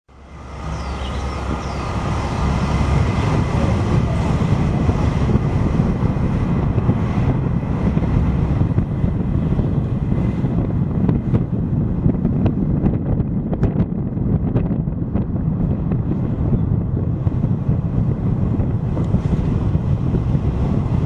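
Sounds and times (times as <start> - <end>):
vehicle rumble on road: 0.1 - 21.0
wind buffeting microphone: 0.1 - 21.0
faint high bird chirps: 0.7 - 1.9.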